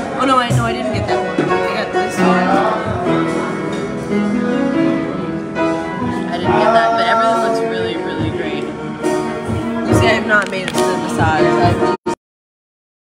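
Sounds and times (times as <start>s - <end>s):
instrumental accompaniment: 0.0s - 12.2s
person singing: 2.0s - 10.3s.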